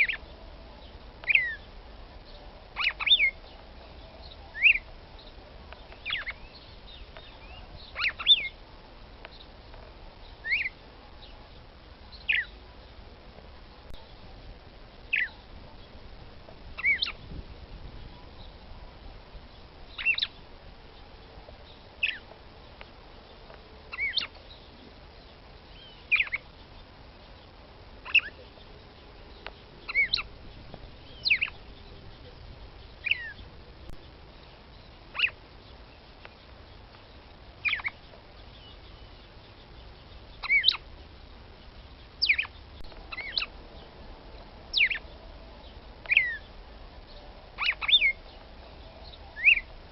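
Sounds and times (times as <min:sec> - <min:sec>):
bird giving sharp calls: 0:02.8 - 0:03.4, 0:07.4 - 0:08.6, 0:16.8 - 0:17.2, 0:23.9 - 0:24.3, 0:29.9 - 0:30.4, 0:35.1 - 0:35.4, 0:40.4 - 0:40.8, 0:42.2 - 0:43.6, 0:44.7 - 0:45.0, 0:47.6 - 0:48.2.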